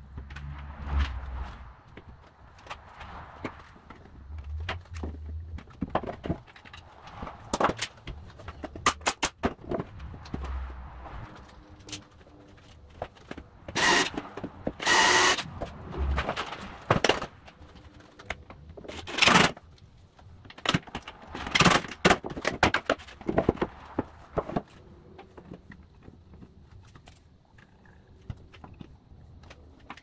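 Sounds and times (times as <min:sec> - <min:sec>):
cordless drill running: 0:13.8 - 0:14.1, 0:14.8 - 0:15.4.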